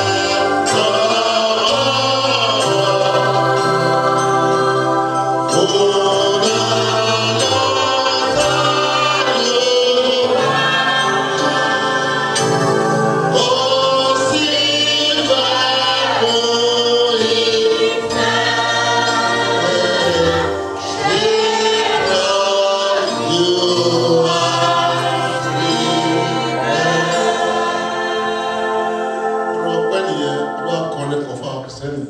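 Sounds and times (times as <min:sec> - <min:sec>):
man singing into microphone: 0:00.0 - 0:04.0, 0:05.5 - 0:12.4, 0:13.3 - 0:18.3, 0:19.1 - 0:28.2
choir singing gospel: 0:00.0 - 0:32.0
low musical accompaniment: 0:00.0 - 0:32.0.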